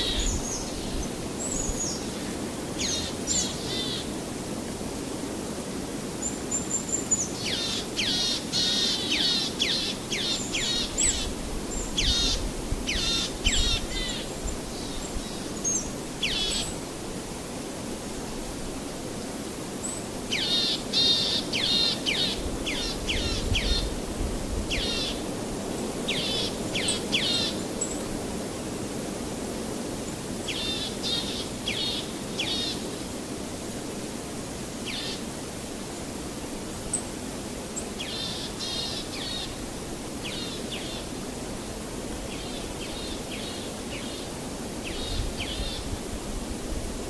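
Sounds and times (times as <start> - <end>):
low background noise: 0.0 - 47.0.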